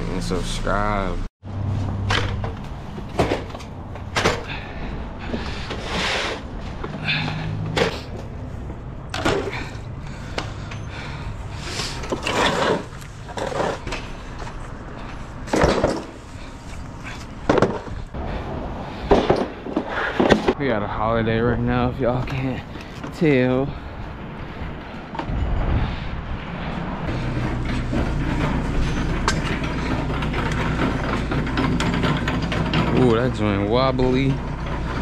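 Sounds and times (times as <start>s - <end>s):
cart wheels rolling and rattling: 1.6s - 20.6s, 27.0s - 35.0s
cases knocking and clattering: 15.5s - 16.2s, 17.4s - 18.0s.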